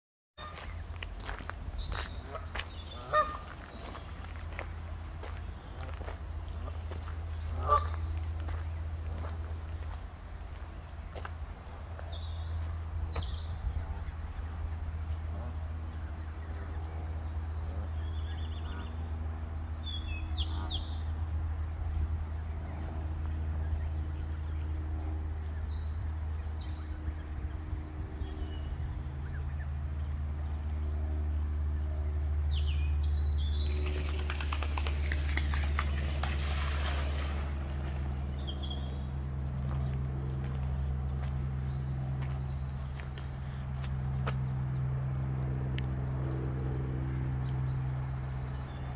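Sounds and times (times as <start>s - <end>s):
small songbirds calling: 0.4s - 19.0s
birds chirping: 0.4s - 21.3s, 22.5s - 48.9s
low mechanical hum: 0.4s - 48.9s
steady low rumble: 0.4s - 48.9s.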